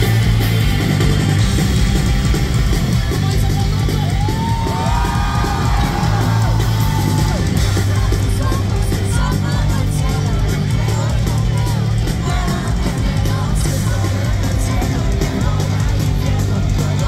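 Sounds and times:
rock band playing live: 0:00.0 - 0:17.0
person yelling over music: 0:03.7 - 0:07.6.

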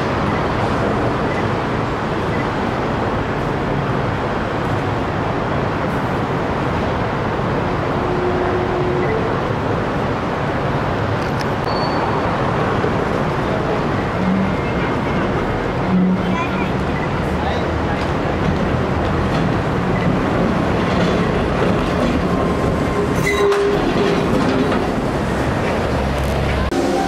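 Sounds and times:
streetcar crossing on tracks: 0:00.0 - 0:27.0.

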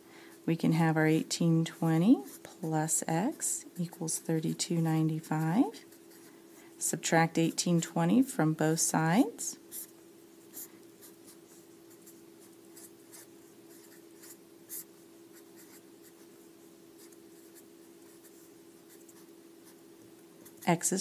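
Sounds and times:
marker scratching on paper: 0:09.7 - 0:16.4, 0:17.0 - 0:19.8.

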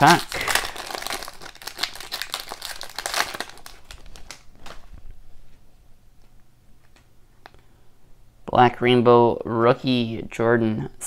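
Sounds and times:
foil wrapper crinkling: 0:00.0 - 0:05.0.

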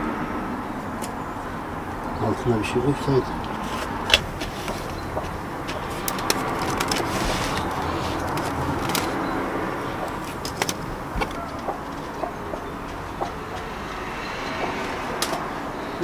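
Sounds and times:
straw rustling: 0:03.4 - 0:12.0.

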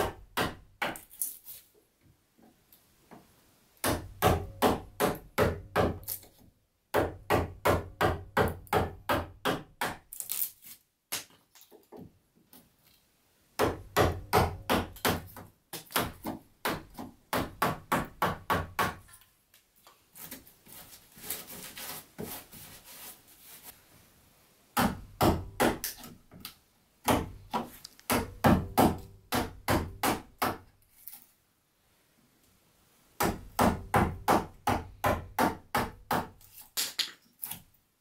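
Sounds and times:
wooden mallet striking steel chisel: 0:27.0 - 0:30.6.

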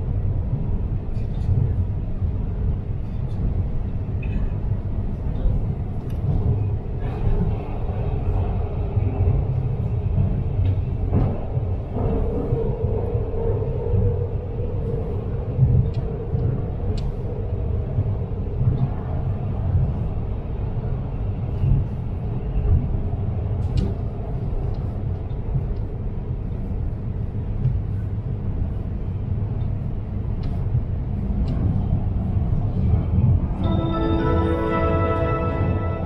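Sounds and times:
train low rumble: 0:00.0 - 0:36.0
humming tone: 0:33.5 - 0:36.0.

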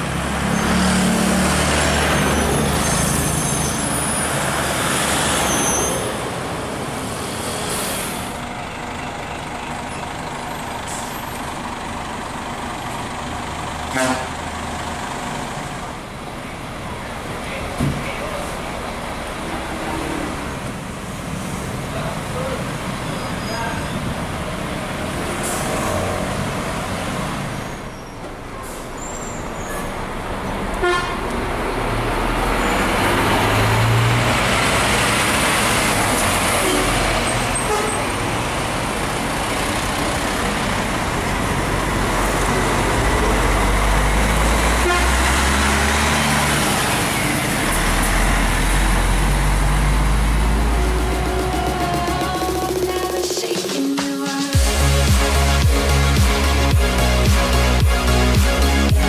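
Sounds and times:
diesel bus engine rumble: 0:00.0 - 0:53.2, 0:54.6 - 0:59.0
street traffic: 0:00.0 - 0:59.0
vehicle horn tooting: 0:13.9 - 0:14.4, 0:30.8 - 0:31.2, 0:44.8 - 0:45.2.

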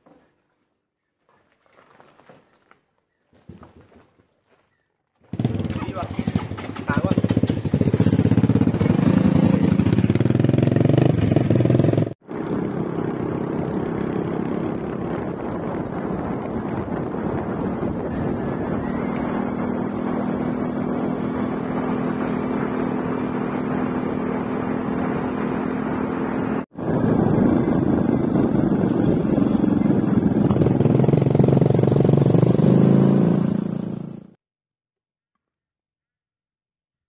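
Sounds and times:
engine running: 0:05.2 - 0:34.3.

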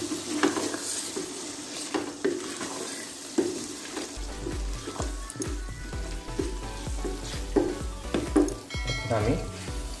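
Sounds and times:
wooden spoon scraping a pot: 0:00.0 - 0:05.1, 0:06.4 - 0:08.5
food sizzling in a pot: 0:00.0 - 0:10.0.

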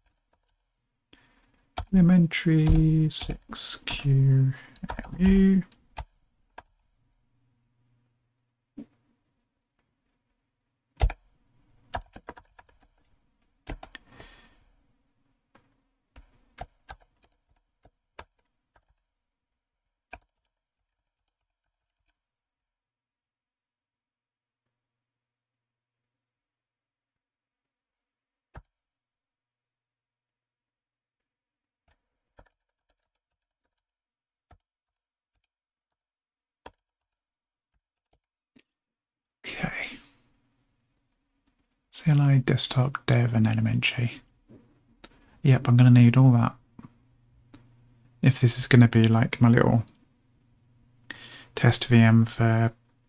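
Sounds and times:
keyboard keys clicking: 0:04.8 - 0:06.7.

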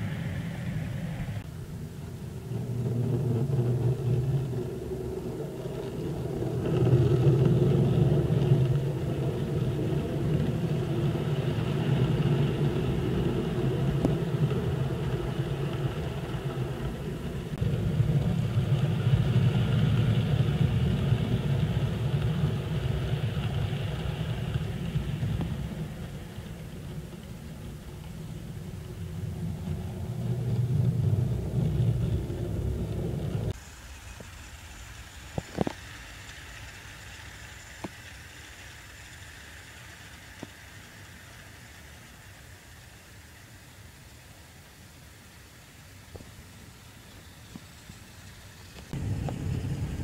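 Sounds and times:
model trains rumbling on rails: 0:00.0 - 0:50.0.

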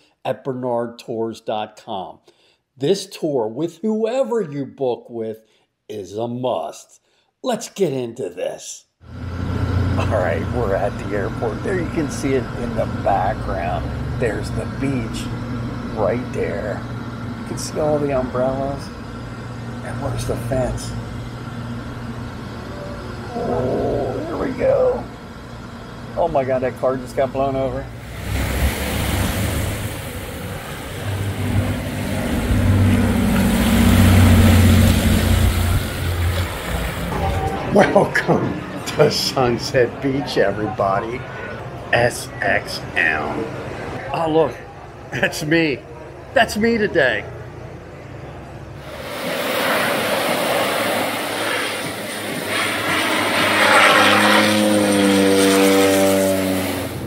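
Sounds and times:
propeller plane engines droning: 0:09.1 - 0:57.0.

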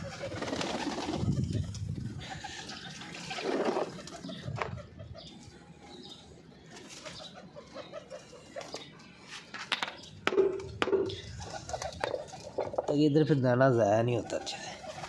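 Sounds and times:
wings flapping: 0:00.0 - 0:04.8, 0:10.6 - 0:12.8
pigeons cooing: 0:00.0 - 0:09.4, 0:10.5 - 0:12.9, 0:14.0 - 0:15.0
plastic dish knocks: 0:10.2 - 0:11.2.

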